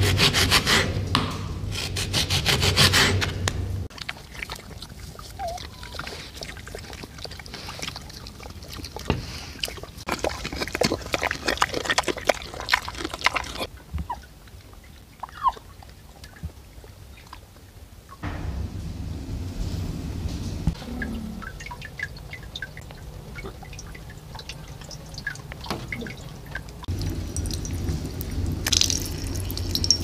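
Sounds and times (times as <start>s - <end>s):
pigs squelching and chomping in mud: 3.9s - 18.4s, 20.7s - 30.0s.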